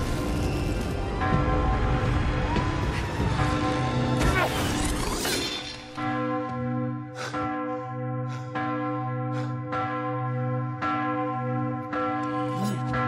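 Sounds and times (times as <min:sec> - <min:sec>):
large bell ringing: 0:05.9 - 0:13.0.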